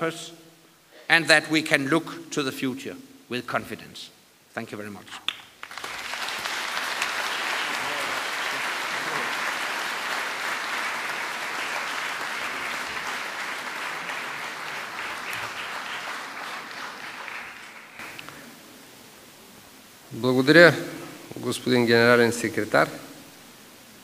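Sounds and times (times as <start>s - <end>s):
large audience applauding: 5.3s - 18.4s.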